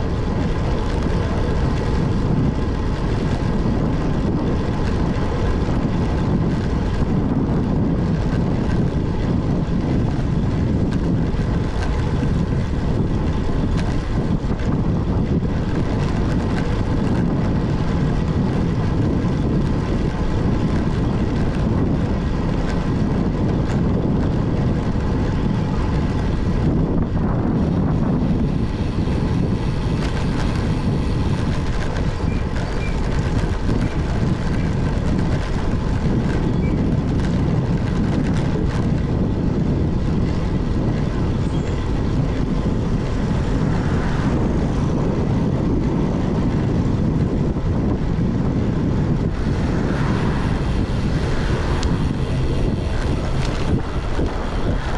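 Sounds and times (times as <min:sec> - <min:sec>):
wind rushing on microphone: 0:00.0 - 0:54.9.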